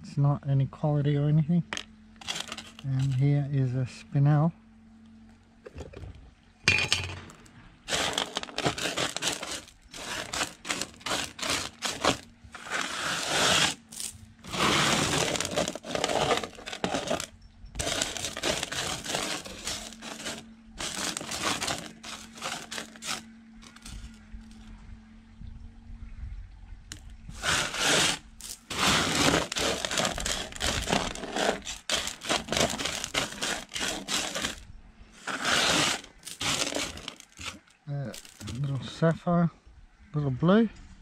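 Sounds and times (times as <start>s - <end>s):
gravel scraping on sheet metal: 2.2s - 3.3s, 7.9s - 24.2s, 27.3s - 34.6s, 35.2s - 38.7s.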